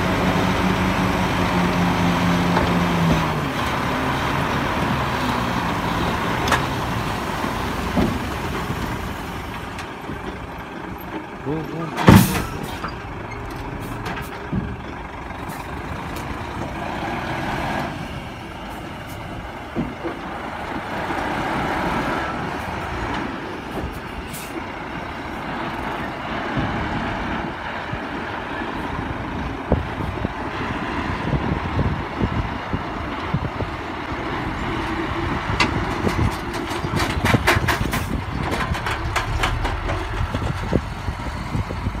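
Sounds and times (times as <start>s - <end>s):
diesel dump trucks running: 0.0s - 42.0s
soil and rock unloading: 34.3s - 42.0s
sharp clicks and knocks: 35.5s - 41.0s.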